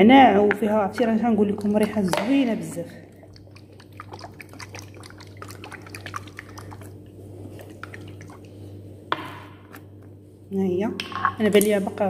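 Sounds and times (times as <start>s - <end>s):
liquid sloshing in glass bottle: 0.5s - 8.8s.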